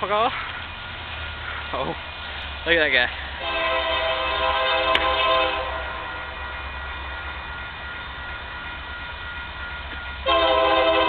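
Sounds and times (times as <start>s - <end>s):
locomotive air horn: 3.4s - 6.7s, 10.2s - 11.0s.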